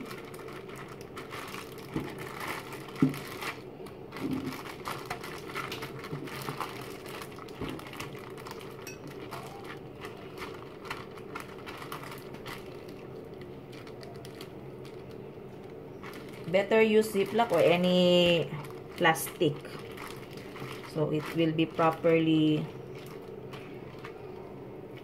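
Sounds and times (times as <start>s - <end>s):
plastic bag crinkling: 0.0s - 25.0s.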